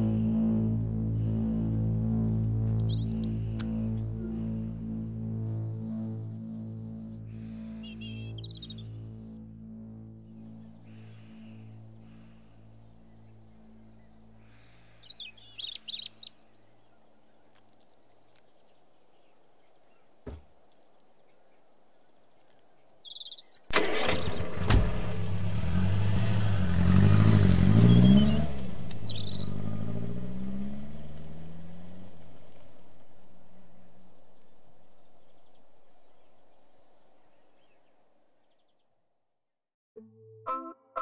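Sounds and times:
car driving off: 0.0 - 6.0, 23.7 - 35.4
car engine starting and revving: 0.0 - 15.0, 23.7 - 34.5
bird chirps: 2.6 - 4.6, 7.5 - 23.8, 27.7 - 29.8
thump: 20.2 - 20.5.

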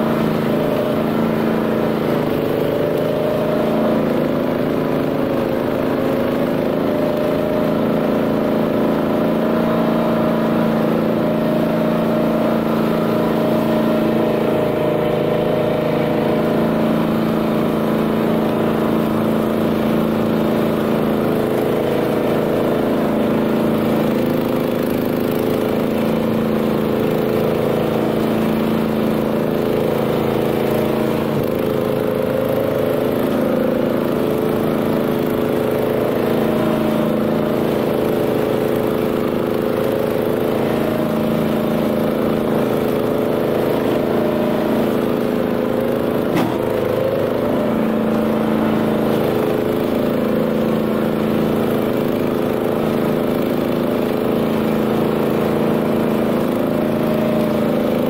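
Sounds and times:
tractor engine running under load: 0.0 - 58.0.

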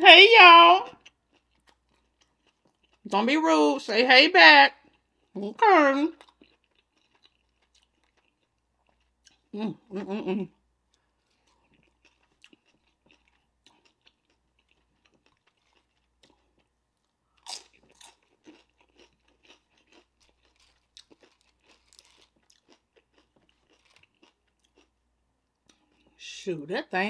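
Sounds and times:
chewing with crackling crunches: 0.8 - 3.1, 4.7 - 5.4, 6.1 - 9.5, 10.9 - 26.2
biting into crunchy food: 6.1 - 9.5, 11.2 - 24.9.

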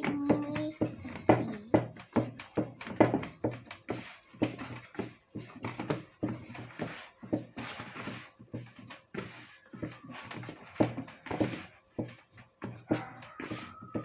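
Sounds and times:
hands kneading dough: 0.0 - 14.0.

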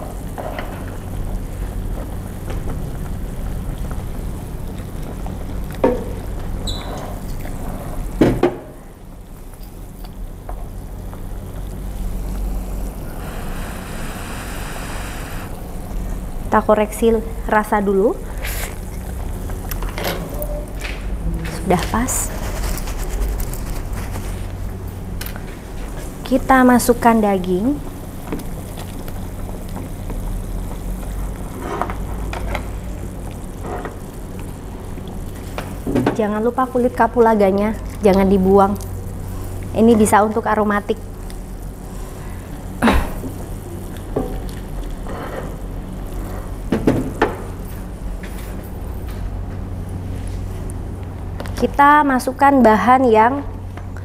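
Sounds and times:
broth simmering: 0.0 - 8.2, 8.9 - 23.1, 25.4 - 35.9.

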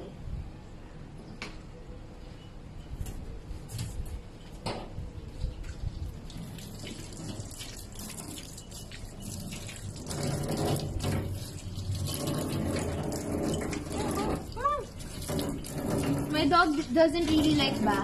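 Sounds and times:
tap water running into sink: 6.3 - 18.0
water splashing over dog: 6.3 - 18.0.

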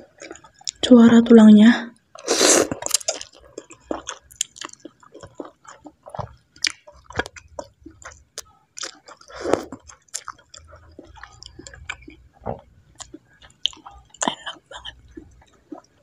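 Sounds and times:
close chewing of food: 0.0 - 1.3, 1.9 - 16.0
loud mouth sound: 2.3 - 2.9.

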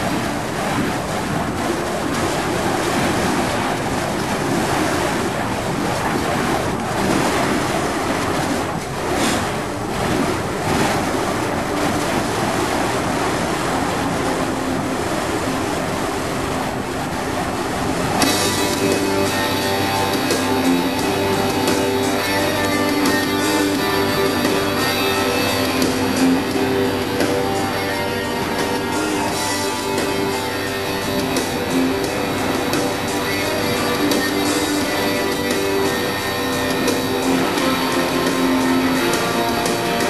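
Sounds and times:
loud rushing noise: 0.0 - 40.0
rock music with guitar: 18.2 - 40.0.

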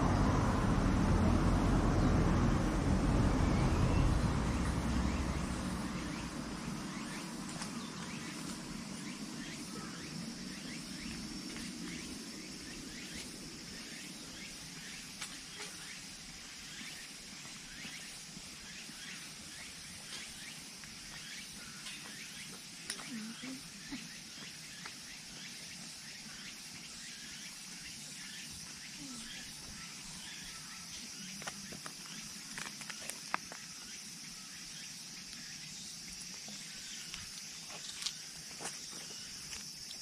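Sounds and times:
passing vehicle rumble: 0.0 - 9.4
small birds chirping: 1.2 - 40.0.

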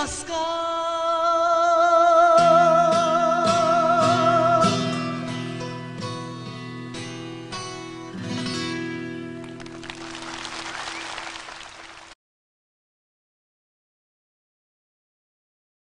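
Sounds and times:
acoustic guitar chords: 0.5 - 9.8
applause: 9.4 - 12.2.

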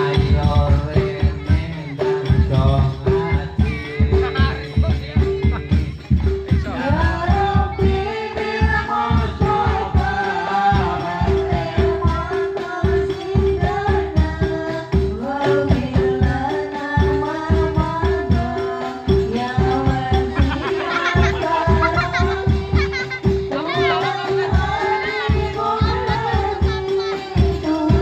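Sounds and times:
music with singing voice: 0.0 - 28.0.

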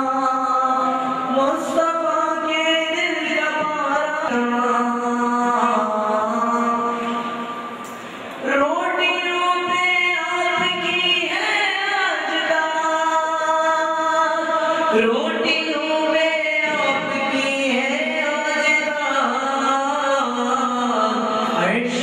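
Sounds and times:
man singing devotional song: 8.5 - 22.0.

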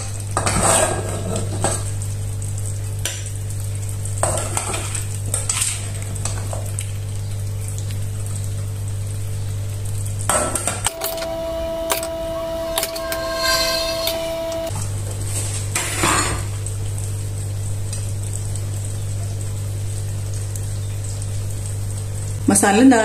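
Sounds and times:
steady low hum: 10.9 - 14.7.

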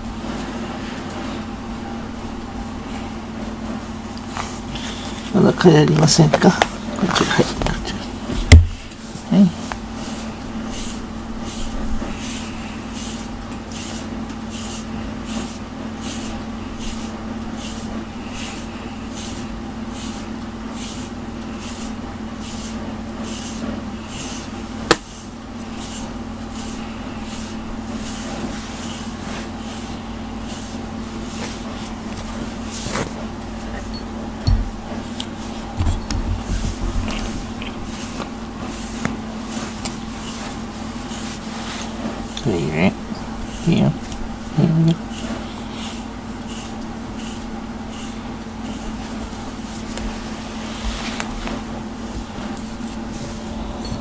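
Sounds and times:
steady low hum: 0.0 - 54.0
brush swishing through fur: 9.9 - 33.9, 34.6 - 54.0.

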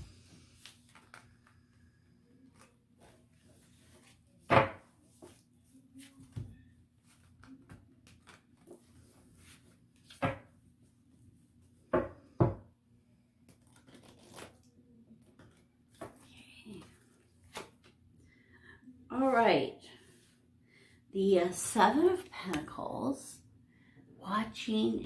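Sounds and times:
cards shuffling rustle: 13.4 - 14.6.

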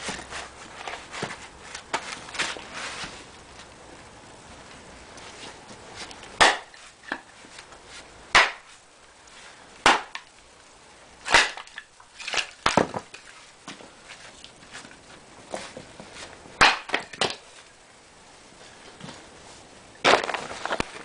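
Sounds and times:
split wood falling: 6.2 - 7.7, 8.3 - 8.8, 9.8 - 10.4, 11.2 - 15.0, 16.6 - 17.6, 20.0 - 21.0
axe splitting wood: 6.3 - 7.3, 8.3 - 8.8, 9.8 - 10.3, 11.2 - 13.2, 16.6 - 17.5, 20.0 - 20.9.

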